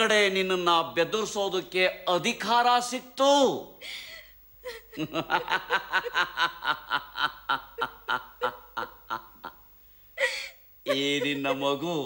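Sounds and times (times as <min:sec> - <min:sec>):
man laughing: 0:04.6 - 0:09.6, 0:10.2 - 0:11.8.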